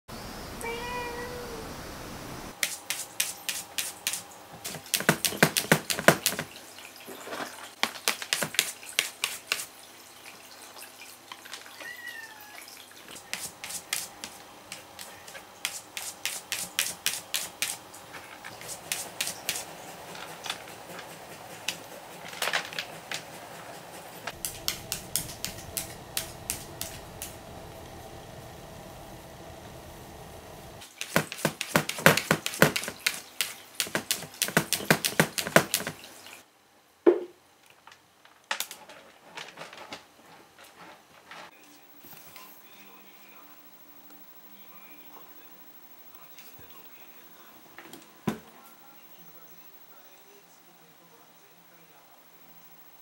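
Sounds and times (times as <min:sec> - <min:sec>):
cat meowing faintly: 0:00.6 - 0:01.7, 0:11.7 - 0:12.8
cat claws scratching plastic: 0:13.0 - 0:17.8, 0:30.8 - 0:36.0.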